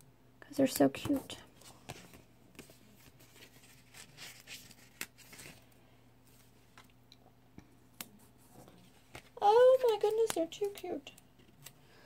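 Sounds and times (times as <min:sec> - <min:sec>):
paper rustling and tapping: 0:08.0 - 0:11.7.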